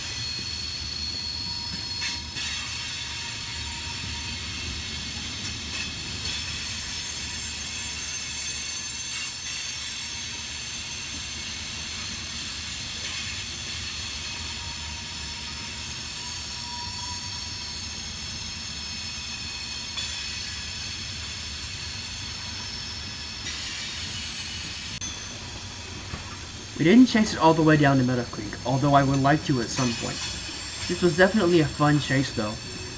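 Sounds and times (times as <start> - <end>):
wheels squealing on curved track: 0.0 - 6.4
steel wheels rumbling on rail: 0.0 - 32.9.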